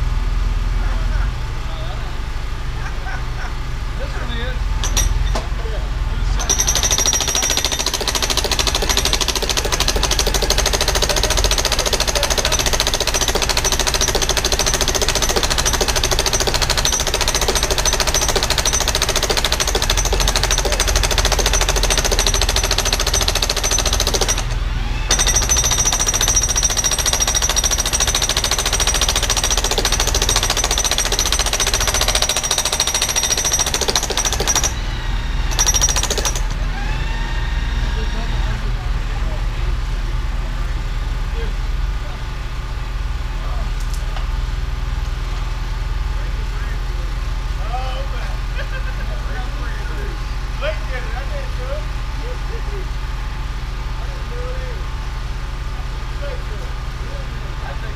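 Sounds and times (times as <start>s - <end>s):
jackhammer hammering: 4.8s - 5.5s, 6.4s - 34.9s, 35.5s - 37.0s.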